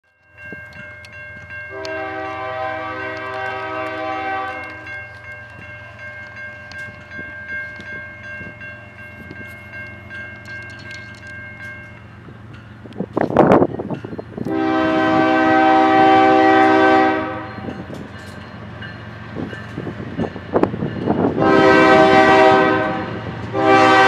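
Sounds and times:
crossing warning bell ringing: 0:00.0 - 0:24.0
train rumbling: 0:00.3 - 0:24.0
locomotive horn blast: 0:01.7 - 0:05.0, 0:14.4 - 0:17.8, 0:21.3 - 0:24.0.

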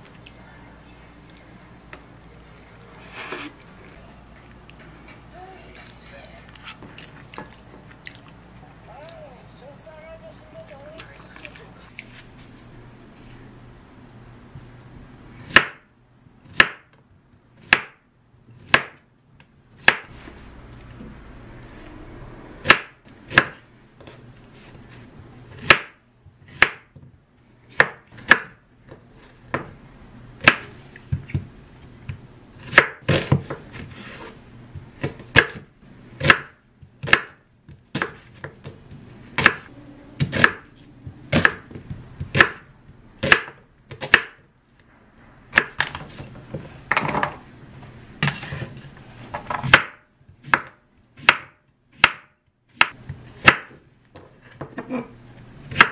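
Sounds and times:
knife chopping on wooden board: 0:15.5 - 0:15.9, 0:16.5 - 0:17.0, 0:17.6 - 0:18.0, 0:18.6 - 0:19.0, 0:19.8 - 0:20.1, 0:22.6 - 0:23.6, 0:25.6 - 0:27.0, 0:27.7 - 0:28.6, 0:30.4 - 0:40.7, 0:41.3 - 0:44.4, 0:49.4 - 0:53.8.

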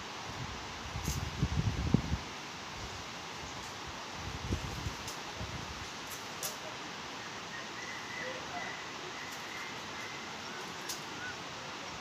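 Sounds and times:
air hissing through leaves: 0:00.0 - 0:12.0.

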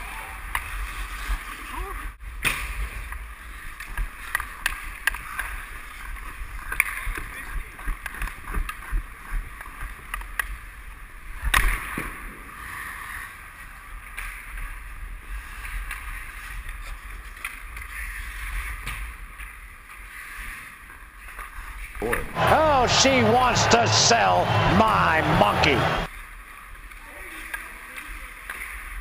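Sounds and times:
skate blades scraping ice: 0:00.6 - 0:01.9
hockey sticks and puck clacking: 0:02.4 - 0:10.6, 0:13.0 - 0:25.8, 0:26.9 - 0:29.0.

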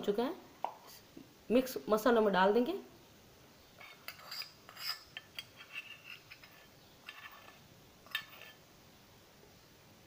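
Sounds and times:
spoon scraping metal pan: 0:03.8 - 0:08.6.

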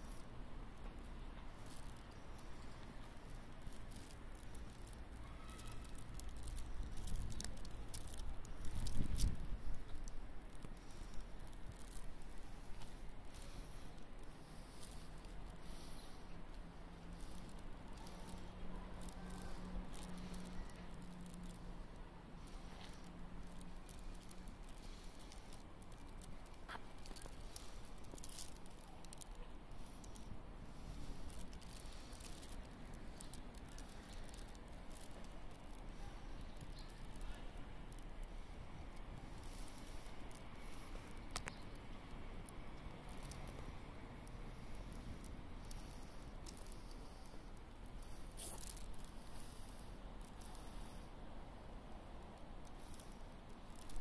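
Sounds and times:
faint background noise: 0:00.0 - 0:54.0
light clicks and rustles: 0:00.0 - 0:54.0.

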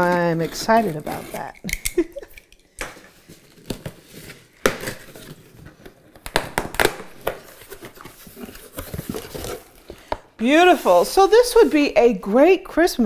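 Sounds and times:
cardboard rustling: 0:00.0 - 0:01.6, 0:02.9 - 0:12.1
packing tape ripping: 0:00.0 - 0:09.8.

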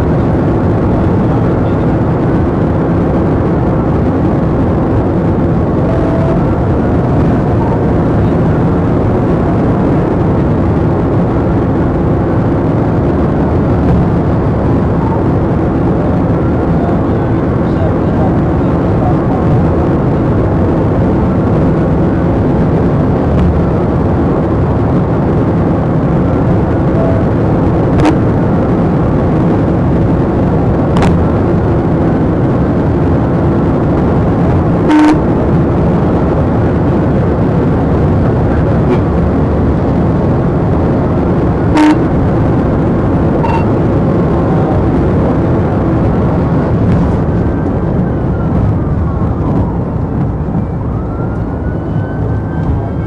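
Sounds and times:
car road and engine noise: 0:00.0 - 0:53.0
siren tone blips: 0:03.8 - 0:10.2, 0:13.0 - 0:18.0, 0:26.6 - 0:28.4, 0:34.8 - 0:35.5, 0:41.6 - 0:42.2, 0:43.3 - 0:44.0, 0:46.6 - 0:53.0.

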